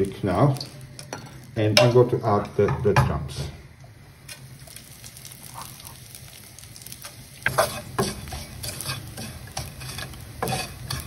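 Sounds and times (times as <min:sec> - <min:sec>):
faint oil sizzle: 0:00.0 - 0:11.0
wooden spoon scraping a pan: 0:07.0 - 0:11.0.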